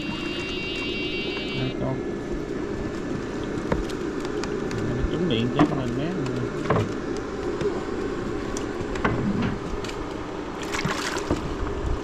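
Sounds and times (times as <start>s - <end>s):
water splash: 10.6s - 11.6s.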